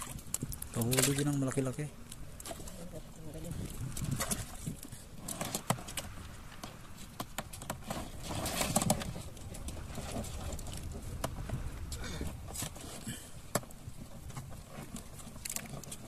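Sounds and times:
dull low bumps: 3.4s - 15.2s
clicks and knocks of handling gear: 12.2s - 16.0s.

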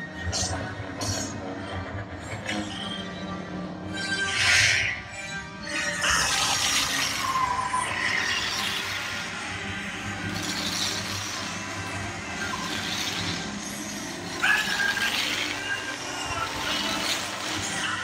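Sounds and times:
music and sound effects over loudspeakers: 0.0s - 18.0s.

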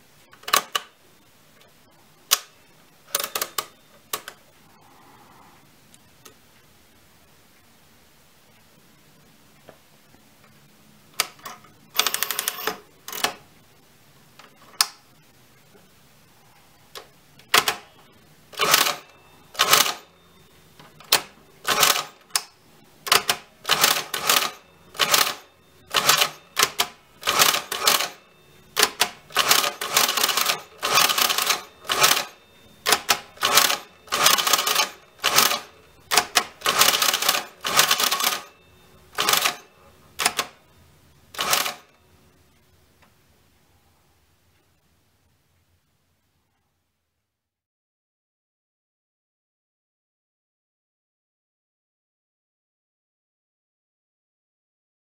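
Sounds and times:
calculator clicks: 3.1s - 4.4s, 23.1s - 28.2s, 28.8s - 38.5s, 41.4s - 41.9s
calculator motor whirr and gear clatter: 18.6s - 20.0s, 21.0s - 22.2s, 23.1s - 28.2s, 28.8s - 38.5s, 39.1s - 40.5s, 41.4s - 41.9s.

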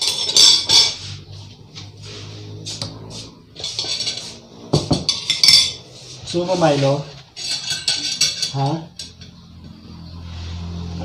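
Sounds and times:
cutlery clinking on plates: 0.0s - 1.2s, 3.6s - 5.9s, 7.4s - 9.4s.

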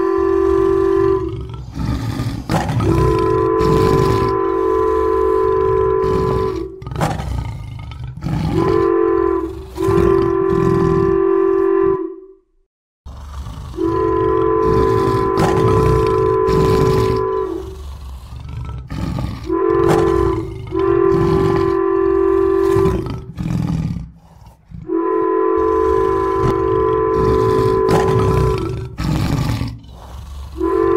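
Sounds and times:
locomotive air horn blasts: 0.0s - 1.4s, 2.8s - 6.8s, 8.5s - 12.4s, 13.8s - 17.7s, 19.5s - 23.0s, 24.9s - 28.6s, 30.6s - 30.9s
low rumbling: 13.5s - 30.9s.

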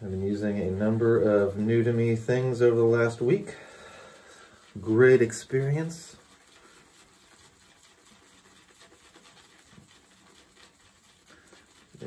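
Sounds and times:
soft rustling: 0.3s - 12.0s.

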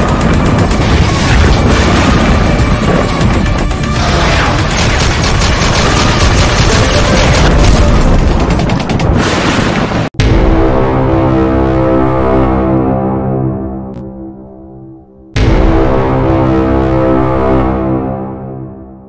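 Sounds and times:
music: 0.0s - 9.2s, 10.2s - 19.0s
machine-gun fire: 0.0s - 9.8s
heavy booms: 0.1s - 11.6s, 15.4s - 16.8s.

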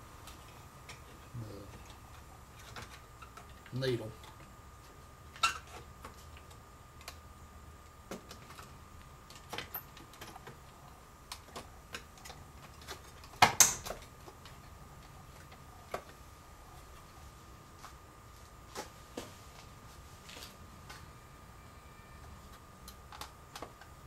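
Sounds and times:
small parts clicking and tapping: 7.8s - 16.2s.

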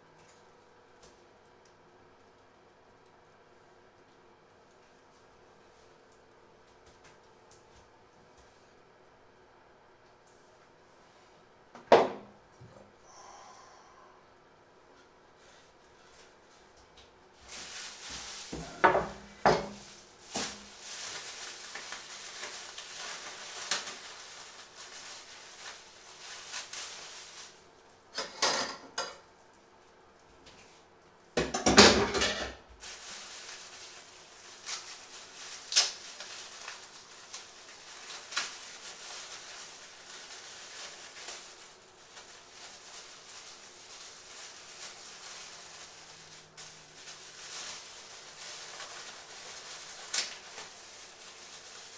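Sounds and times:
plastic package rustling: 17.4s - 28.0s, 32.8s - 51.9s.

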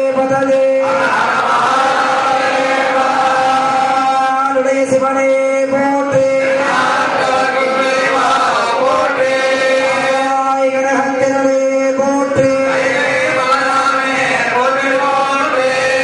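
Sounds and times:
priests chanting on a held note: 0.8s - 4.6s, 6.2s - 10.6s, 12.3s - 16.0s.

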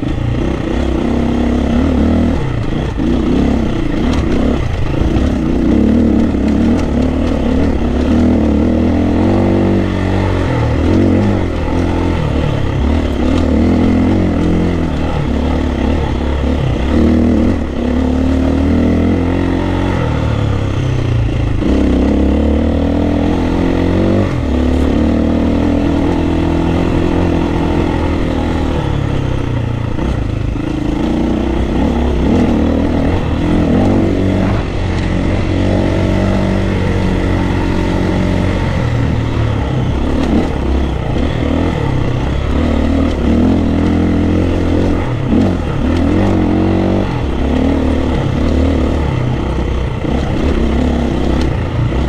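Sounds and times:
dirt bike engine revving: 0.0s - 52.0s.

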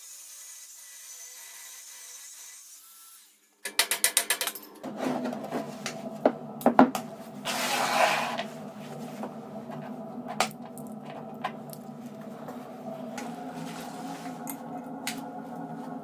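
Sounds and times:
low steady hum: 4.8s - 16.0s
metal scraping on wood: 7.4s - 8.6s.

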